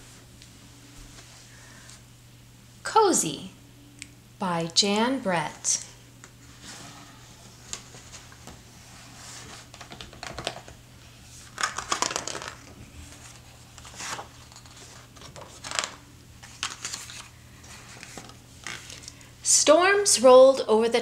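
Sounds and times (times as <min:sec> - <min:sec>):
book pages turning: 0:11.3 - 0:19.2.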